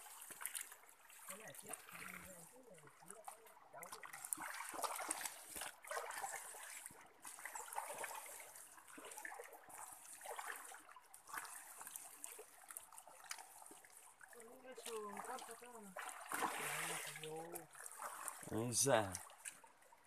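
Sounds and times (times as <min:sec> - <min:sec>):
hands squelching in wet mud: 0:03.8 - 0:13.9.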